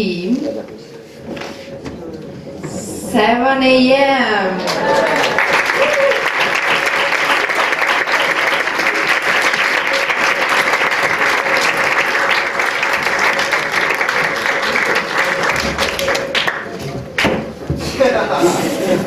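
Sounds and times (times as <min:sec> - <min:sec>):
audience applauding: 0:04.6 - 0:17.5.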